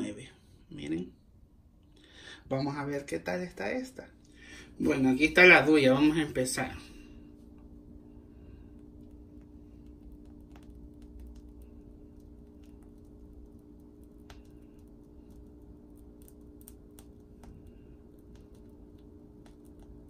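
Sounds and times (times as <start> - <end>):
low hum: 0.0 - 20.0
plastic piping bag crinkling: 8.7 - 20.0.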